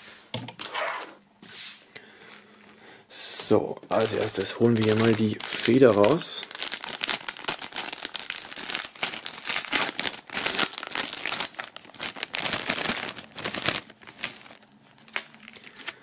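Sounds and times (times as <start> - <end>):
plastic sleeve crinkling: 3.9 - 16.0.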